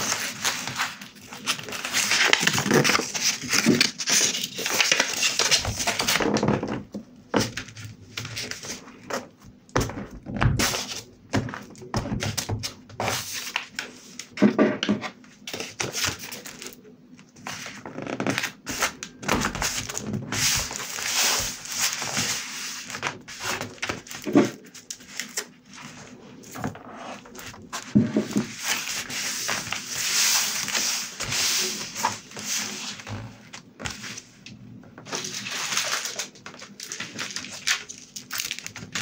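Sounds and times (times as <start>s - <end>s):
paper rustling and sliding: 0.0s - 6.4s, 17.4s - 34.4s, 35.0s - 39.0s.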